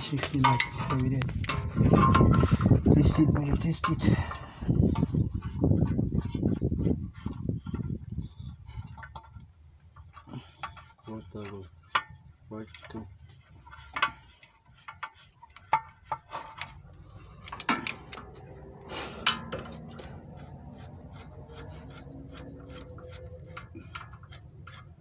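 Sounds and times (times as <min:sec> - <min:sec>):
metal tool clinking and knocking: 0:00.0 - 0:05.6, 0:11.8 - 0:20.5, 0:22.4 - 0:25.0
metal rubbing: 0:00.0 - 0:25.0.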